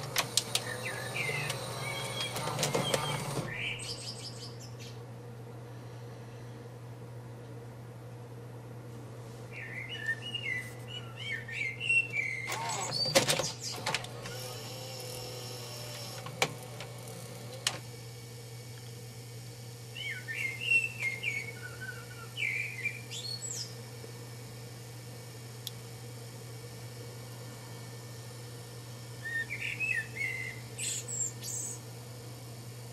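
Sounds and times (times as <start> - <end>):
sharp mechanical clicks: 0.0 - 3.6, 12.4 - 17.9
tape mechanism humming: 0.0 - 5.4, 10.0 - 32.9.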